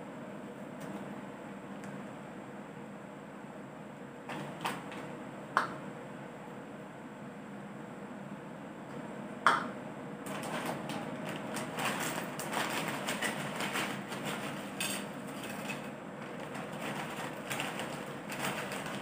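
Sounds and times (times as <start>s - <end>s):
chips clattering onto plate: 10.3s - 19.0s
plastic bag crinkling: 10.3s - 19.0s.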